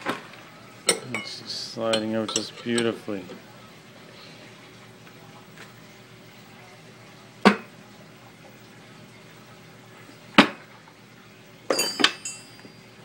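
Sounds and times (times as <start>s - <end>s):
wrench clinking on metal: 11.7s - 12.7s.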